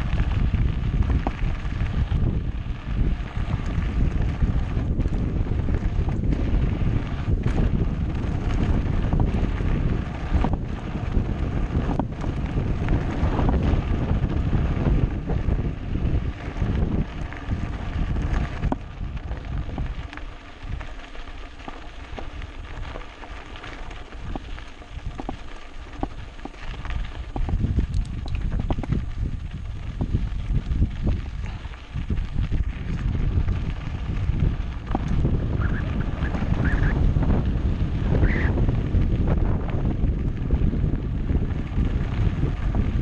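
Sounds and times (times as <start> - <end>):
wind rushing over microphone: 0.0 - 23.0, 23.8 - 43.0
bike tyre rumble: 0.0 - 43.0.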